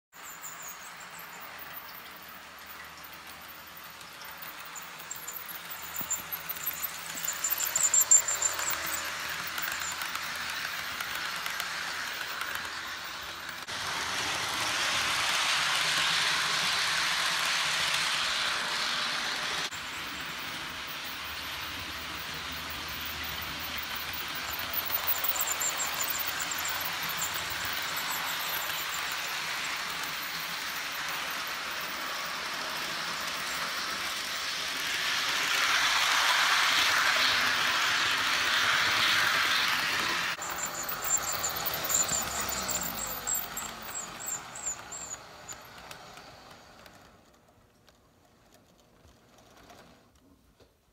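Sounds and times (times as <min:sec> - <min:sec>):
model train wheels on rail: 0:00.1 - 0:50.9
quick clicks: 0:04.0 - 0:13.7.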